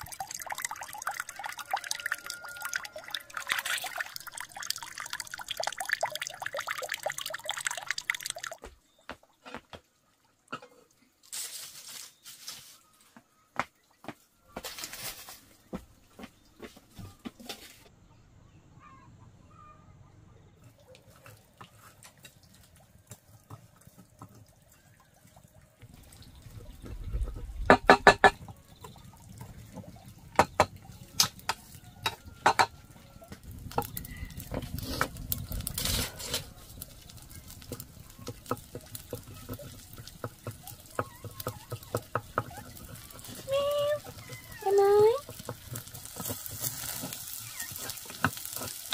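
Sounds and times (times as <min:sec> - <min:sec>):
stick scraping metal pot: 0:00.0 - 0:08.3, 0:30.4 - 0:48.9.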